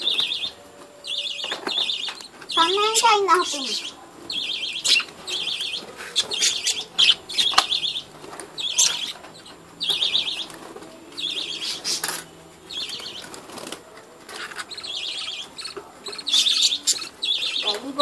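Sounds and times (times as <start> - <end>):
budgerigars chattering: 0.0 - 13.7, 14.3 - 18.0.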